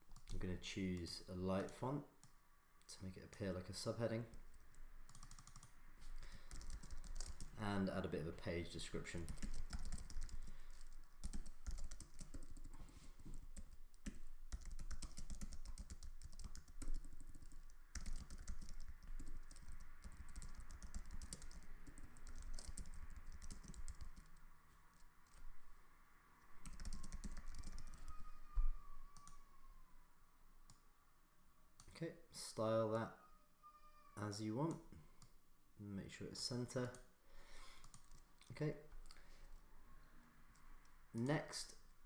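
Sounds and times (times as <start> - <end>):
computer keyboard typing: 4.3 - 5.7, 6.4 - 7.6, 9.1 - 24.4, 26.6 - 28.2, 37.8 - 38.2.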